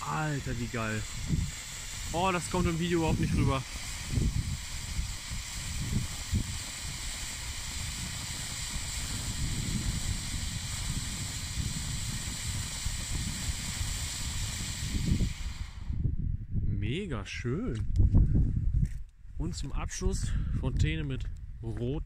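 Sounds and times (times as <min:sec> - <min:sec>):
firework fountain hissing: 0:00.0 - 0:16.1.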